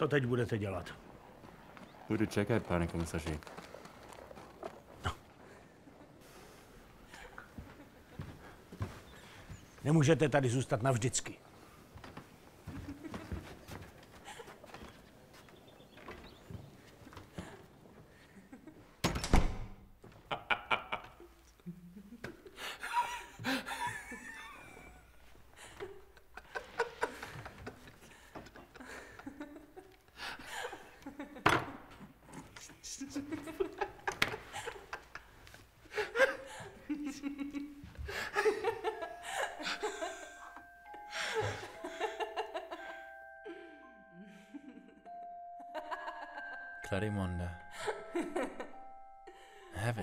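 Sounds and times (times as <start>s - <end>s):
door shutting with a thud: 19.0s - 19.8s
man laughing: 20.3s - 25.1s, 32.3s - 43.7s
music of long held notes: 39.0s - 49.7s.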